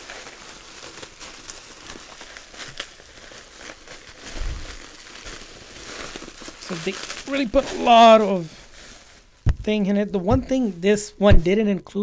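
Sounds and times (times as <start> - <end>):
bubble wrap crinkling: 0.0 - 11.5
dull thump: 9.4 - 10.6.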